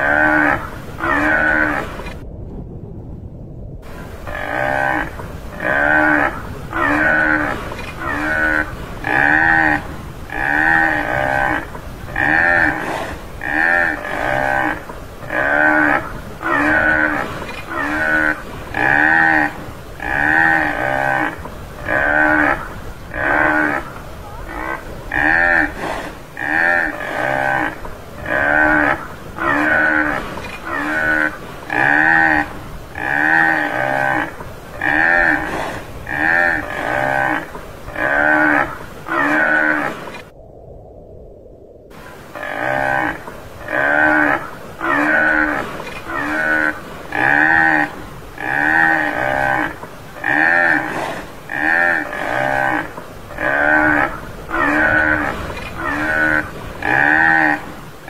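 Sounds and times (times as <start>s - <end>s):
buffalo lowing calls: 0.0s - 2.1s, 4.0s - 40.2s, 42.2s - 57.7s.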